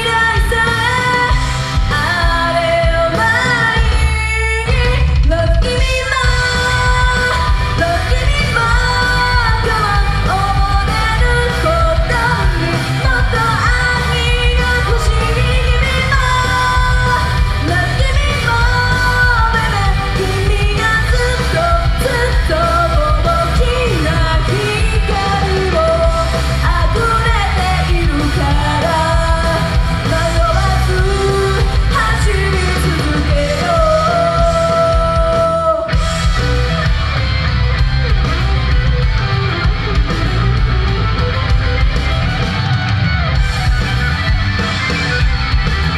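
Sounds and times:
woman singing into microphone: 0.0 - 36.4
backing music with heavy bass: 0.0 - 45.9.

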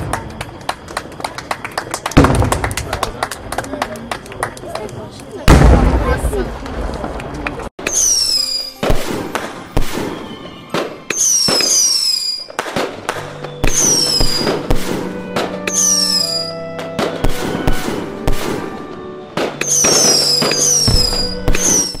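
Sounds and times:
fireworks bangs and crackles: 0.0 - 22.0
falling whistles: 7.8 - 15.0, 15.6 - 16.7, 19.6 - 22.0
music with held notes: 8.2 - 12.0, 13.0 - 22.0.

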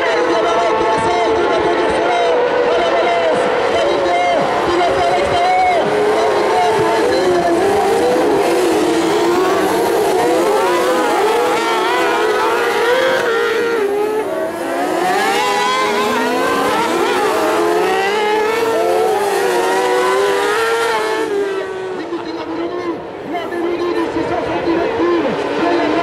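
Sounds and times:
racing buggy engines revving: 0.0 - 26.0.

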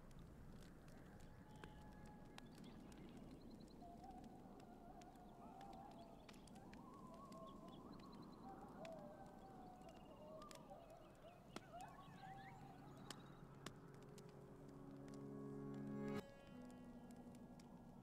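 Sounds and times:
campfire crackling: 0.0 - 18.0
distant animal howling calls: 3.8 - 13.4.

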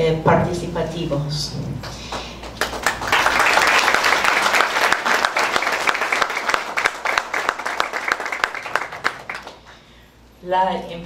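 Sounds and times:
audience applause: 2.5 - 9.9.

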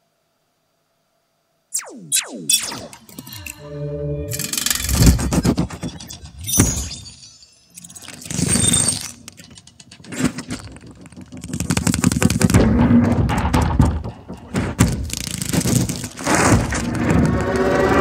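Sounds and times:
crackling clicks and knocks: 4.3 - 18.0.

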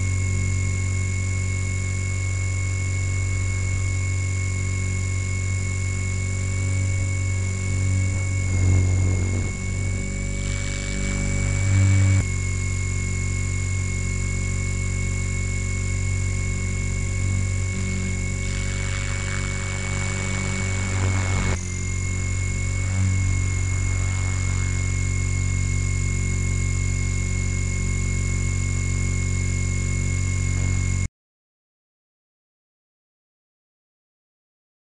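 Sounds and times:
electric motor and gears whining: 0.0 - 31.1
helicopter rotor noise: 5.3 - 12.2, 16.6 - 26.6.

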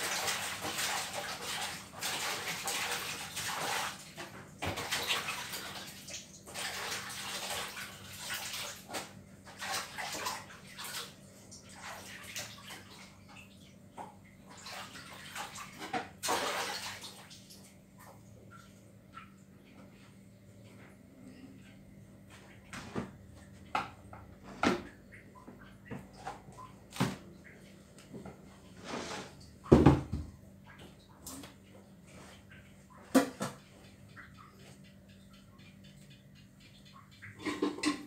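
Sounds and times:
water running and splashing: 0.0 - 13.6, 14.4 - 17.7.

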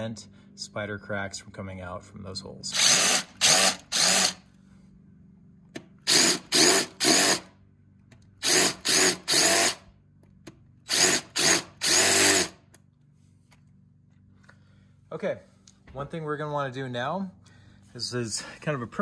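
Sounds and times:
cordless drill bursts: 2.7 - 4.5, 6.0 - 7.5, 8.4 - 9.8, 10.9 - 12.6.

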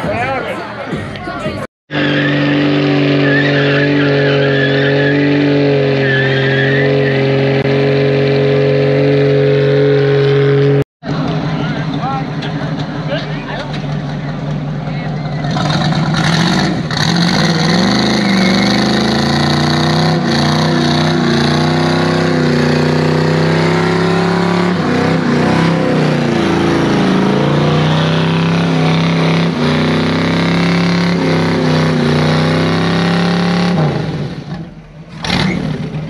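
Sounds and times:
car engine revving: 1.9 - 36.0.

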